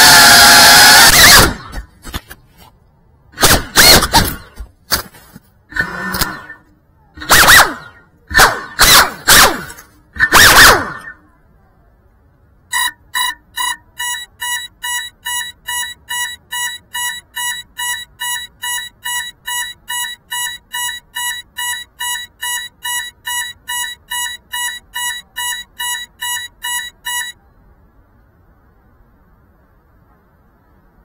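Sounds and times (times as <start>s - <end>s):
high alarm beeping: 12.7s - 27.4s.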